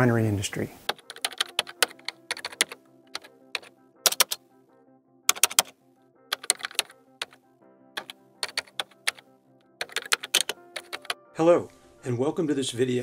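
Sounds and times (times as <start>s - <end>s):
soft background music: 0.0s - 13.0s
keyboard typing clicks: 0.8s - 4.4s, 5.3s - 5.7s, 6.3s - 7.4s, 8.0s - 9.2s, 9.8s - 11.2s.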